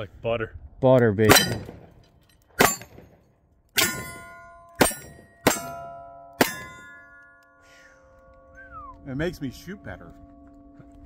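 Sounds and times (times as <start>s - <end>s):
steel targets ringing: 1.3s - 2.0s, 2.6s - 3.1s, 3.8s - 11.0s.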